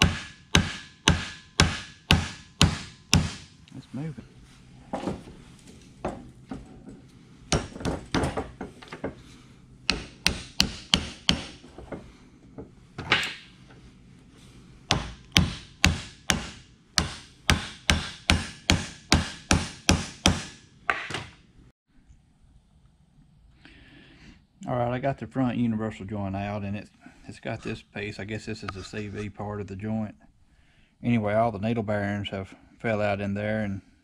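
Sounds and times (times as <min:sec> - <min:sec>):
hammer striking metal joint: 0:00.0 - 0:03.5, 0:07.5 - 0:09.2, 0:09.9 - 0:12.0, 0:14.9 - 0:21.3.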